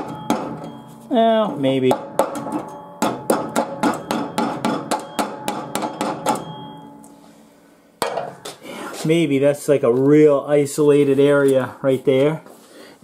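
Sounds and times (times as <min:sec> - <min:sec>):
metal tool tapping steel: 0:01.8 - 0:07.2, 0:08.0 - 0:08.6.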